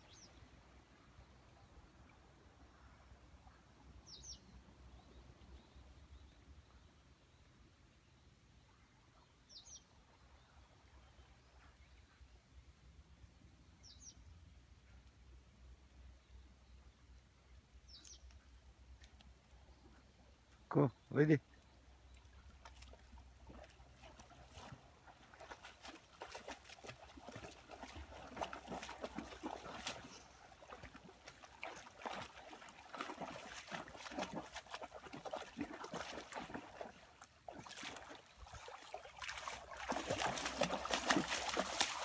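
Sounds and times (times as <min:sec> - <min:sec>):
dog splashing through water: 0:22.6 - 0:42.0.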